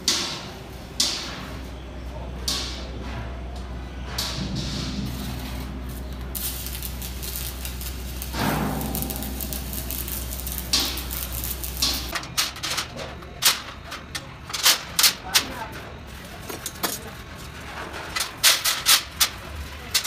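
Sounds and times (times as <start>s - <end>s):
welding machine low hum: 0.0s - 17.8s
arc welding hiss: 5.1s - 12.1s.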